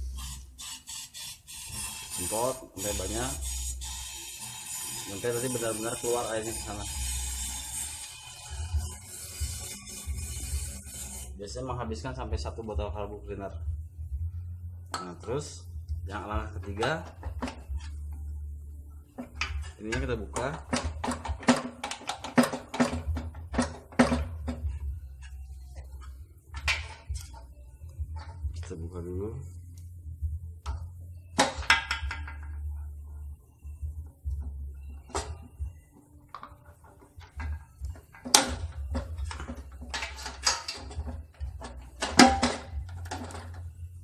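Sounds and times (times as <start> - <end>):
plastic and metal parts rattling: 19.3 - 24.8, 36.3 - 43.9.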